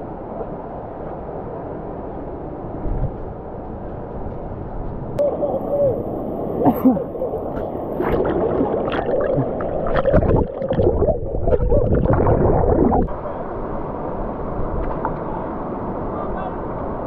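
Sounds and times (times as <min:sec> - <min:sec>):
muffled underwater gurgling: 0:05.2 - 0:13.2.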